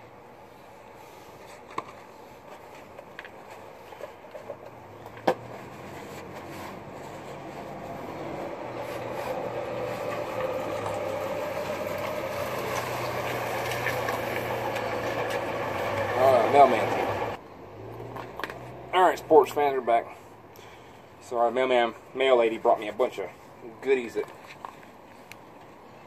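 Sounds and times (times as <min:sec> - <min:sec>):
vehicle engine approaching: 0:04.6 - 0:20.9.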